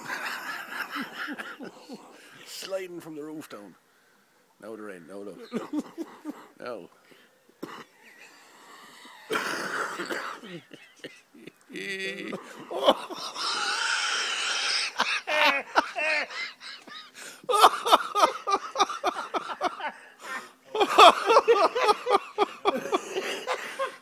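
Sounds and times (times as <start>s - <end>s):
crows cawing: 13.1s - 16.4s.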